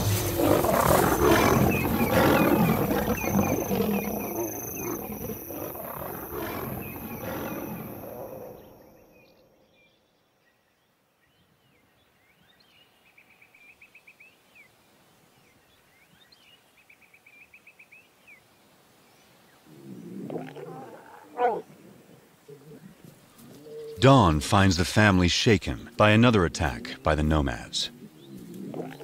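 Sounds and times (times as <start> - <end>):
lions snarling and roaring: 0.0 - 8.8, 19.7 - 24.0, 27.8 - 29.0.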